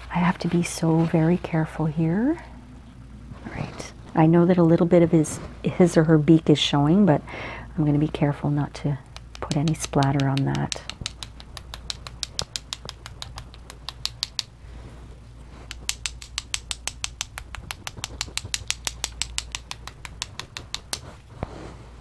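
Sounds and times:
paintbrush tapping against pencil: 9.1 - 14.5, 15.7 - 21.2.

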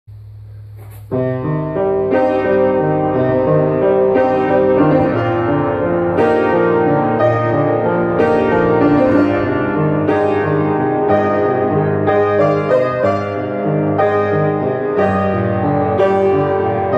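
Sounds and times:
low steady hum: 0.1 - 2.2
organ playing chords: 1.1 - 16.9.

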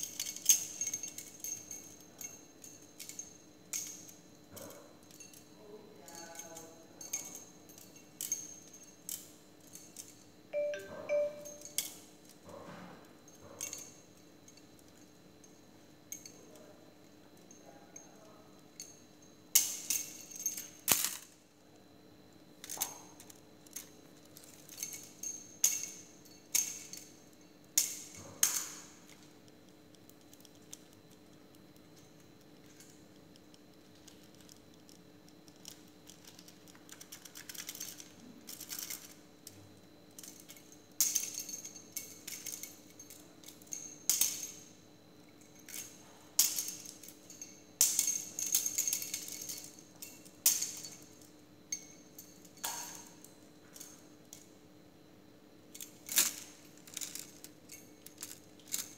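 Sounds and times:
small bell jingling: 10.6 - 11.8.

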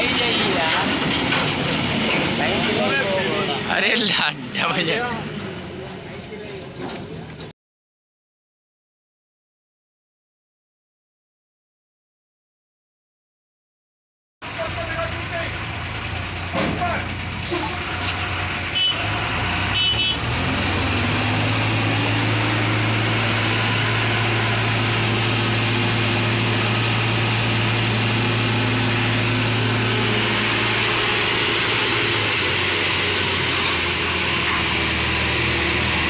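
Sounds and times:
heavy diesel engine revving: 14.5 - 36.0.

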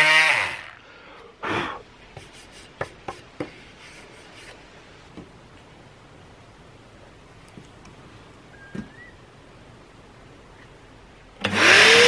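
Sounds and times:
oscillating multi-tool buzzing: 0.0 - 0.8, 11.4 - 12.0.

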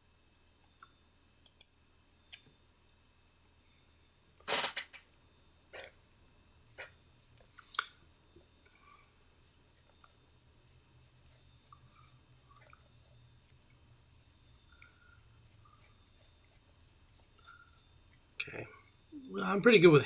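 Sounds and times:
pencil scratching on paper: 9.7 - 17.8.

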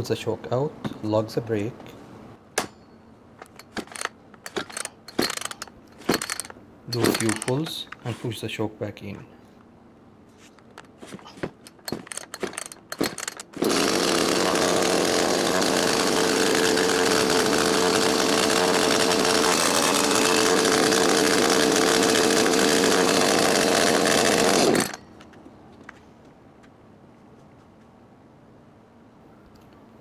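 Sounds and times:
chainsaw engine idling: 3.4 - 8.0, 11.4 - 25.0
chainsaw pull-start rattling: 3.4 - 8.1, 10.6 - 25.4.

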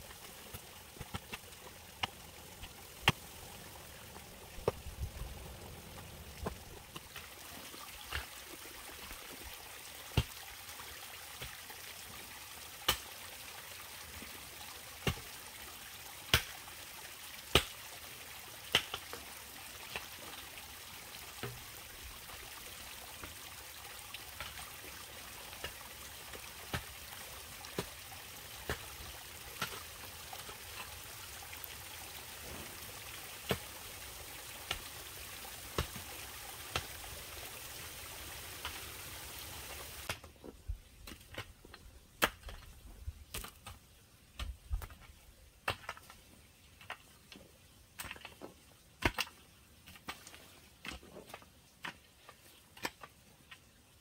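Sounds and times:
stream water trickling: 0.0 - 40.2.

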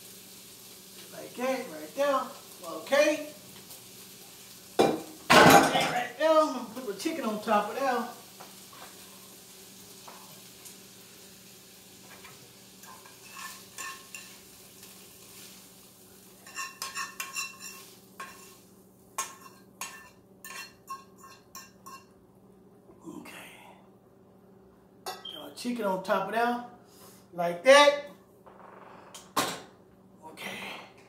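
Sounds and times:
frying pan sizzling: 0.0 - 22.2
utensil scraping a pan: 12.1 - 15.6, 16.4 - 22.1.

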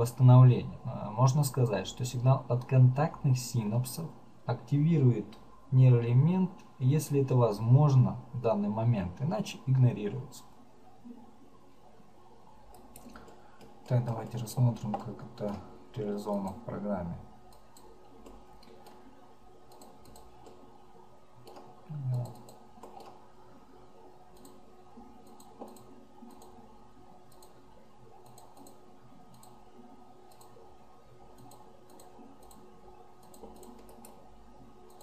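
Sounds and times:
computer mouse clicks: 12.7 - 15.6, 16.3 - 16.6, 17.5 - 19.0, 19.7 - 20.6, 21.4 - 23.2, 24.3 - 24.6, 25.2 - 26.6, 27.3 - 27.6, 28.2 - 29.6, 30.3 - 30.6, 31.3 - 34.2.

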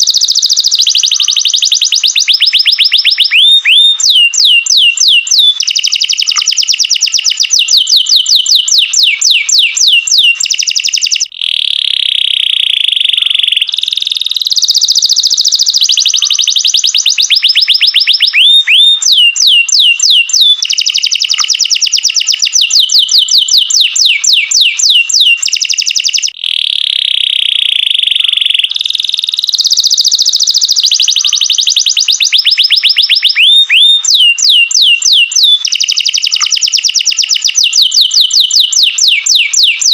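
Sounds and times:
canary singing rapid trills: 0.0 - 39.9.

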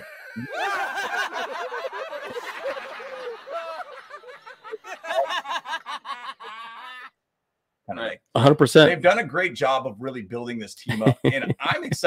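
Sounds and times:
men chuckling: 0.0 - 7.1, 10.9 - 12.0.

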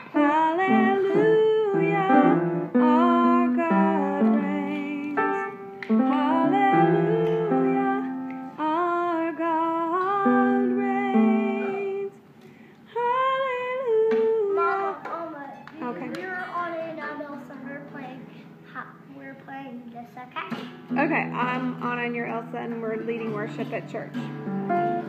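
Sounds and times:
piano notes: 0.0 - 12.1, 20.5 - 25.0
person singing slow melody: 0.0 - 15.1.

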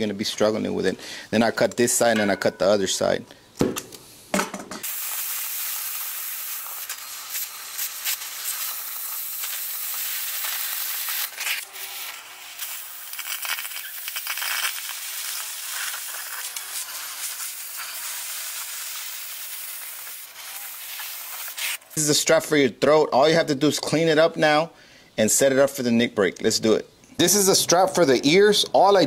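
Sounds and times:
cutting torch flame hissing: 4.8 - 21.9
sparks crackling: 4.8 - 22.2.

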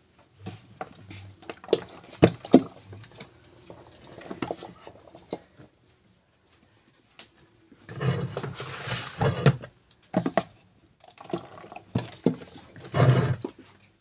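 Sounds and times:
liquid soap pouring into plastic jug: 0.8 - 5.5, 11.0 - 13.8.

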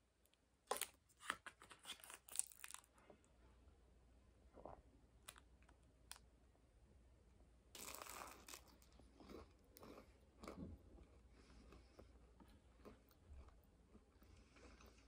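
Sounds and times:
crisp food crackling: 0.7 - 2.9
food crunches: 0.7 - 2.9, 7.8 - 10.6.

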